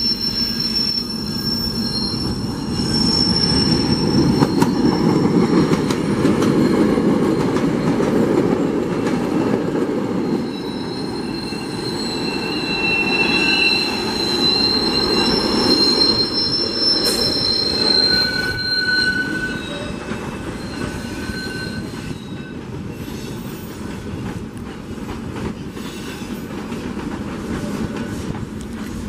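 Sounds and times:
train wheels squealing: 0.0 - 24.2, 25.5 - 26.8
train rumble: 0.0 - 29.0
train clicks: 4.2 - 10.0, 23.7 - 29.0.

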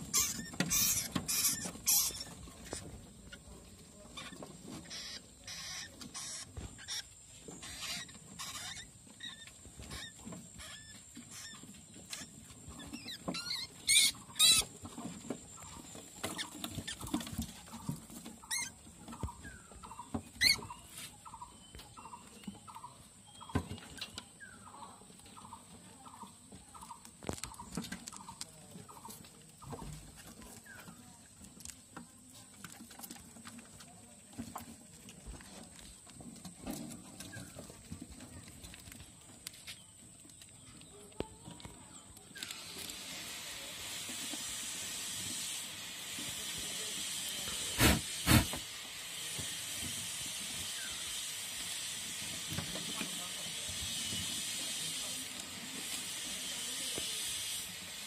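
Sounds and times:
rats squealing: 0.0 - 3.5, 4.1 - 23.0
rats scuffling in a cage: 0.0 - 58.0.

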